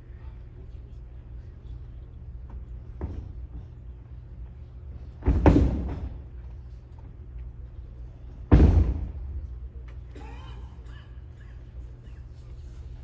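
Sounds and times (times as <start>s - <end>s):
bodies thudding onto mat: 5.2s - 6.2s.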